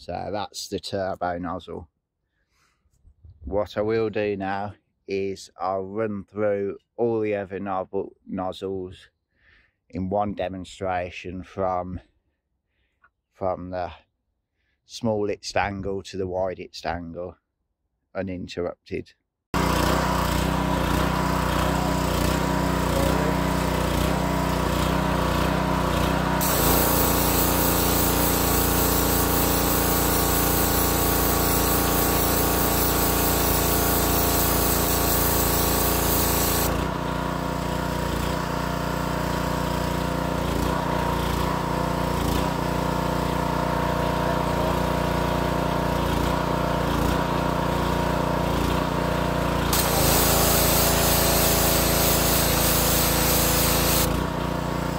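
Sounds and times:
pressure washer engine running: 19.6s - 54.9s
water jet hissing onto ground: 26.4s - 36.9s, 49.7s - 54.1s.

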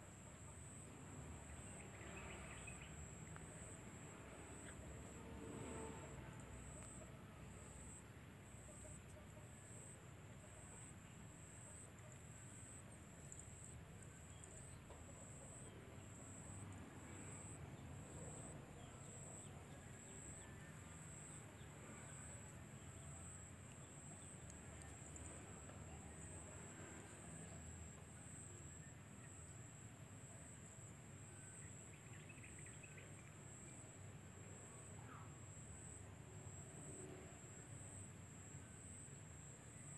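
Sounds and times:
insect chirping: 0.2s - 29.8s.

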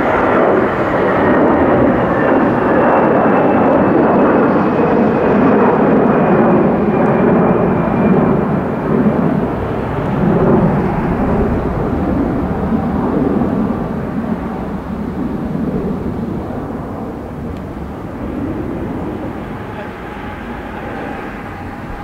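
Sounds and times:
jet engine roar: 0.0s - 22.0s
high whine falling in pitch: 18.8s - 22.0s.

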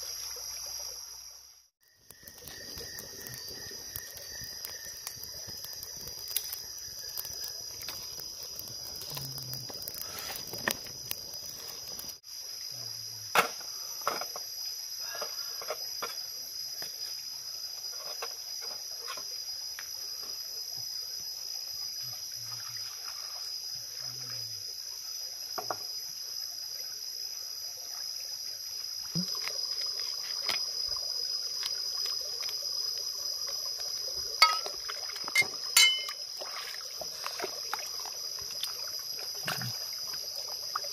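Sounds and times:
high-pitched insect drone: 0.0s - 40.9s
twig fire crackling: 1.8s - 12.2s, 29.2s - 39.0s
water splashes: 29.1s - 40.9s.

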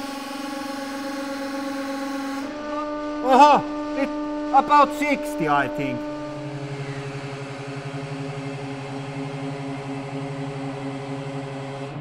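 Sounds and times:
hydraulic pump humming: 1.8s - 7.4s.

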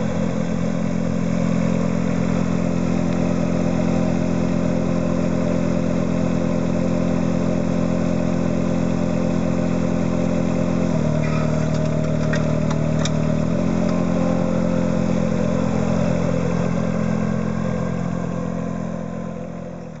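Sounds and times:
machine engine running: 0.0s - 20.0s
clicks: 11.3s - 14.0s.

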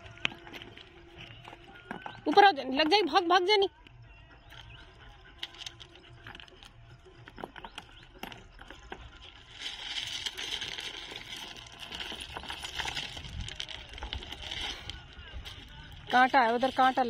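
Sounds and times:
footsteps on gravel: 0.0s - 3.1s, 5.4s - 17.0s
stones clicking together: 5.4s - 17.0s.

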